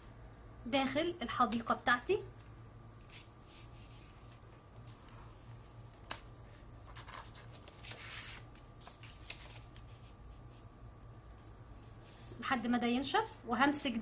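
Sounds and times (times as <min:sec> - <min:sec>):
faint low hum: 0:00.0 - 0:14.0
paper rustling and sliding: 0:03.0 - 0:10.7.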